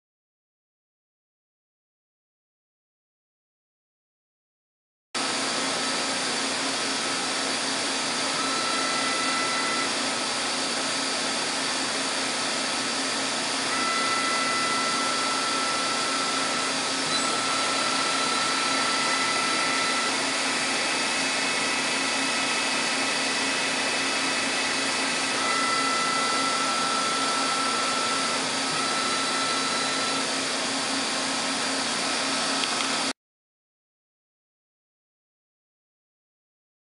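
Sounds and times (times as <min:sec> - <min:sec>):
lathe spindle whine: 0:05.2 - 0:33.1.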